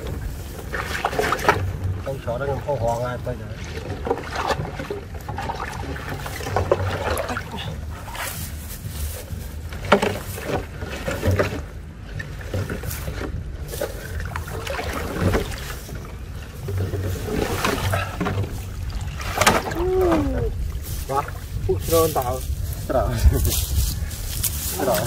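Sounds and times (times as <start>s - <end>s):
muddy water splashing: 0.0s - 25.0s
net dragged through grass: 6.2s - 11.7s, 20.5s - 25.0s.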